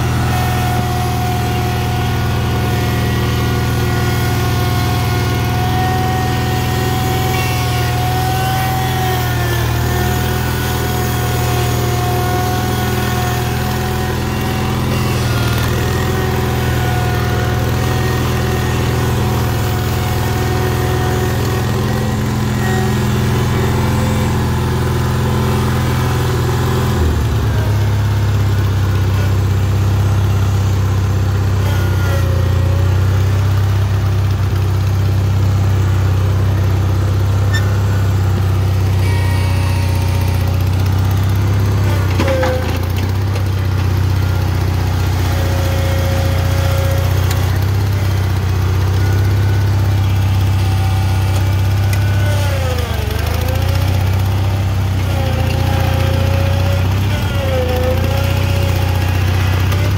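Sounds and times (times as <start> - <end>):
garden tractor engine running: 0.0 - 59.9.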